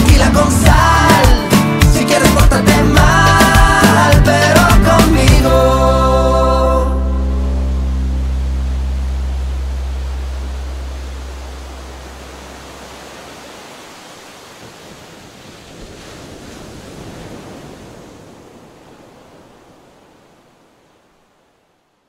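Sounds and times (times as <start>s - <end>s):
low sustained soundtrack note: 6.6s - 12.7s
surf washing on beach: 7.5s - 22.0s.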